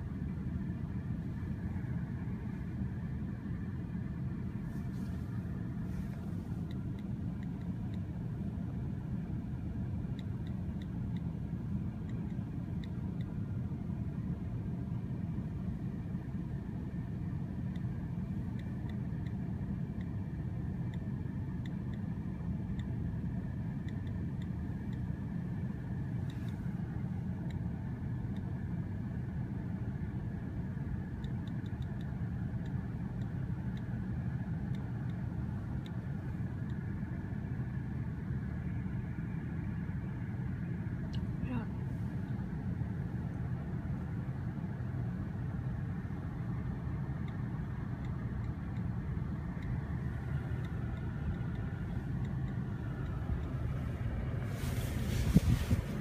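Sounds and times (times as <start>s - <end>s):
car engine idling: 0.0s - 56.0s
faint high ticks: 6.1s - 8.1s, 10.0s - 11.3s, 11.9s - 13.4s, 17.7s - 23.1s, 23.7s - 25.2s, 31.0s - 37.0s, 46.5s - 53.8s.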